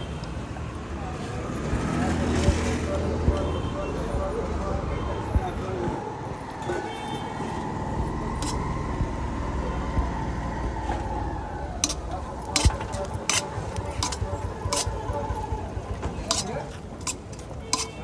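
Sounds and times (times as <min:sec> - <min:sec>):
street traffic: 0:00.0 - 0:18.0
passing vehicle engine: 0:01.2 - 0:03.4, 0:05.8 - 0:17.6.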